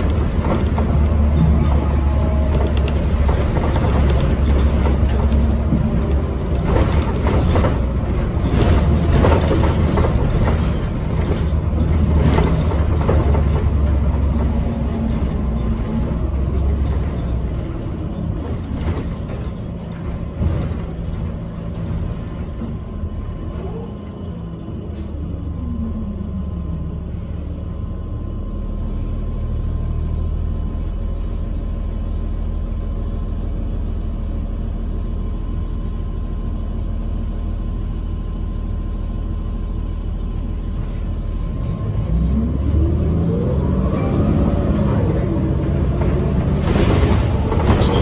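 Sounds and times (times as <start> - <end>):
knocks and rattles: 0.0 - 23.1, 45.5 - 48.0
bus engine drone: 0.0 - 48.0
road noise: 0.0 - 48.0.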